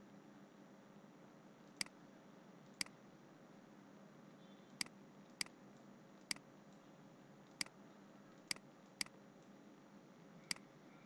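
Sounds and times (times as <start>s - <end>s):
faint room hiss: 0.0s - 11.0s
computer mouse clicking: 1.7s - 2.0s, 4.8s - 6.8s, 7.5s - 9.2s.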